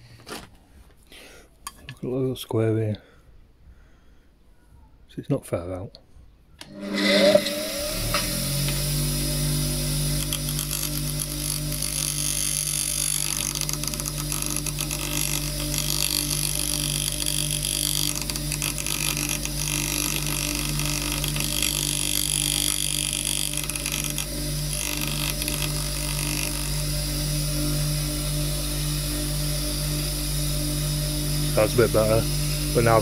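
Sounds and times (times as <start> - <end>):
bench grinder motor hum: 6.6 - 33.0
chisel grinding on stone wheel: 6.7 - 8.9, 9.5 - 27.0.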